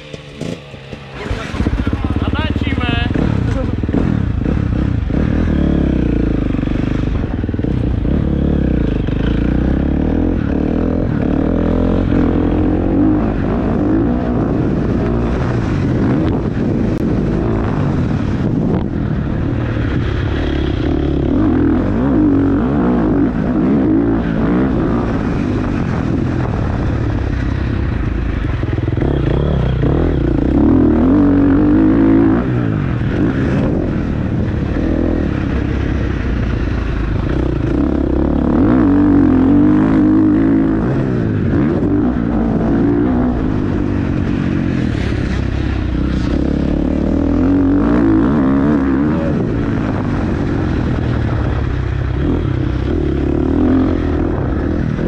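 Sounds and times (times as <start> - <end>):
vehicle engine running: 0.0 - 13.8.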